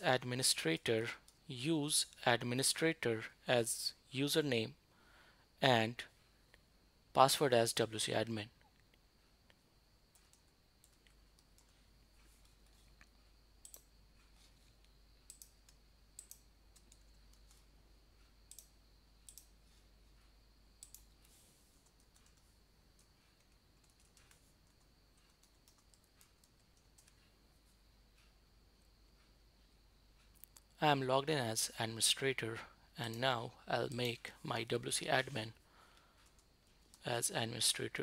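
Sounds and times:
faint steady hum: 0.0 - 38.0
keyboard and mouse clicks: 8.8 - 17.7, 18.5 - 19.6, 20.8 - 27.4.

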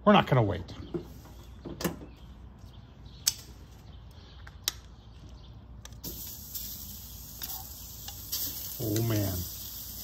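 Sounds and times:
steak sizzling on grill: 6.0 - 10.0.

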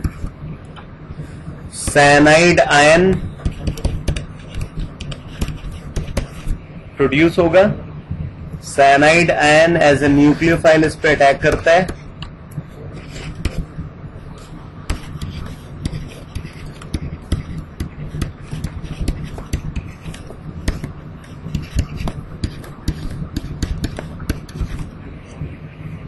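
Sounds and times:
pen tapping and scratching on tablet: 0.0 - 0.3, 3.4 - 6.6, 11.1 - 12.0, 13.0 - 13.7, 14.9 - 24.9
low hum: 0.0 - 26.0.

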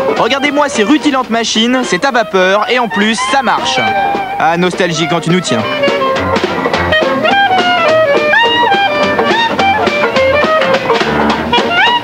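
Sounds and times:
sliding synth melody: 1.8 - 12.0
low bass line: 3.2 - 11.9.

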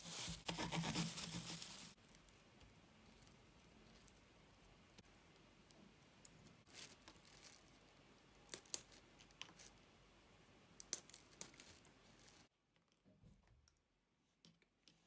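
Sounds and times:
walnut kernels cracking: 8.3 - 9.7, 10.8 - 11.8.

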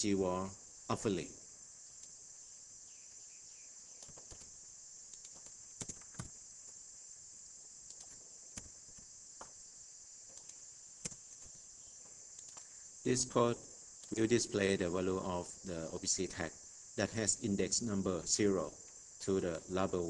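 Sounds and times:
high-pitched hiss: 0.0 - 20.0
keyboard and mouse clicks: 4.0 - 4.5, 5.1 - 6.4, 7.8 - 9.5, 10.3 - 11.6, 12.4 - 12.7.

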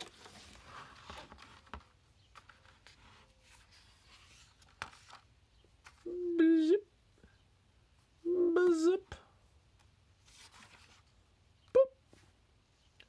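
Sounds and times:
book pages turning: 0.0 - 6.0, 10.2 - 11.2.

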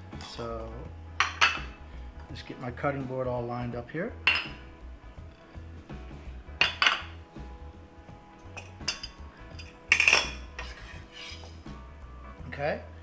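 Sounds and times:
knife and bowls clinking: 8.6 - 11.5.

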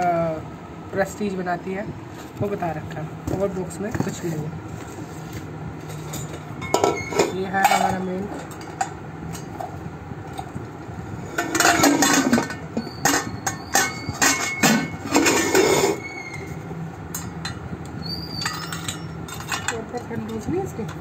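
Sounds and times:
metal pot and lid clinking: 6.0 - 9.6, 11.3 - 16.4, 17.1 - 17.6, 18.4 - 20.5.

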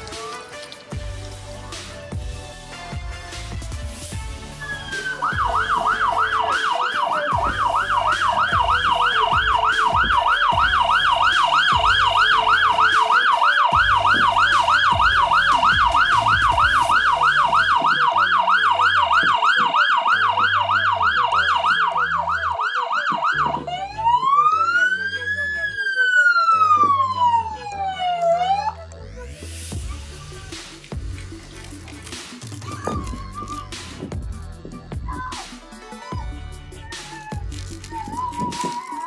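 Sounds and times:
emergency siren: 4.6 - 28.9.

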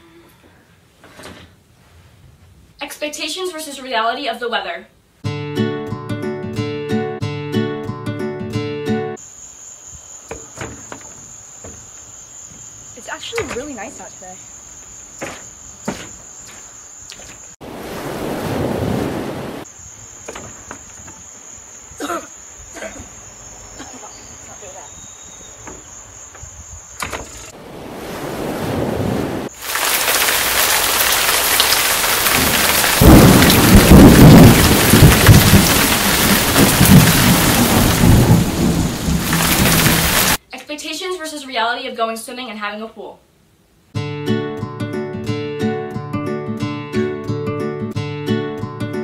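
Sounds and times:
crickets chirping: 9.2 - 40.4
heavy rain: 28.1 - 40.4
rolling thunder: 28.4 - 40.4.

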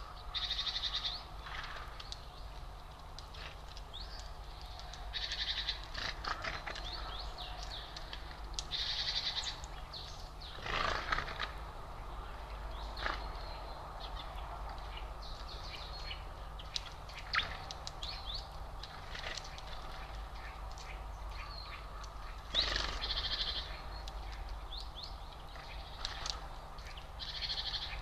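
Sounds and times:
songbirds chirping: 0.0 - 28.0
steady low hum: 0.0 - 28.0
rapid buzzy bird trill: 16.6 - 28.0.

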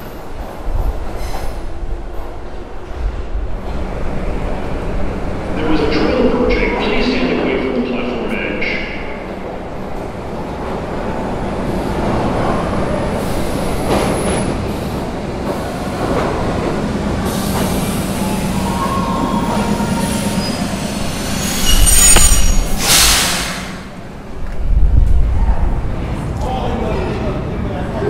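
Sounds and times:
subway train rumbling: 0.0 - 28.0
wheel and brake squeals: 18.2 - 23.5
short air hiss: 22.0 - 23.8.

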